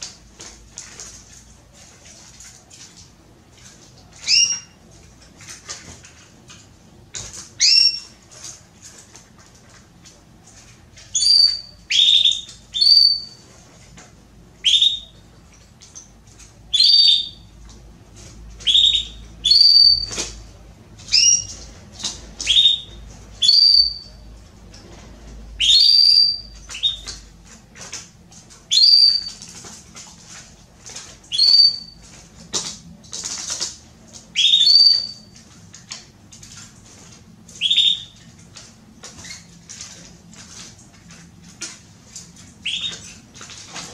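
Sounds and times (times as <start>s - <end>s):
canary chirping: 4.1s - 4.8s, 7.6s - 8.2s, 11.0s - 13.5s, 14.6s - 15.3s, 16.7s - 17.5s, 18.6s - 20.3s, 21.0s - 24.3s, 25.5s - 27.2s, 28.6s - 29.6s, 31.3s - 32.6s, 34.3s - 35.3s, 37.5s - 38.2s, 42.6s - 43.2s.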